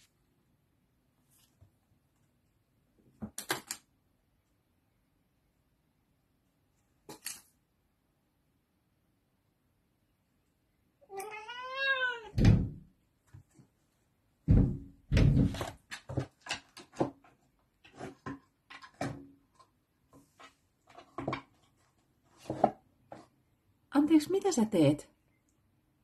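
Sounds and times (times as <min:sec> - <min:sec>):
cat meowing: 0:11.0 - 0:12.4
heavy thump: 0:14.5 - 0:15.6.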